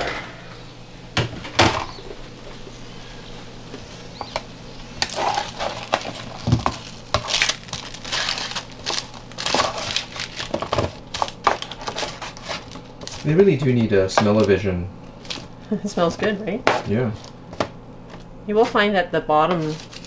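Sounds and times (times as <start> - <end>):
parchment paper crinkling: 5.0 - 15.5, 19.5 - 20.0.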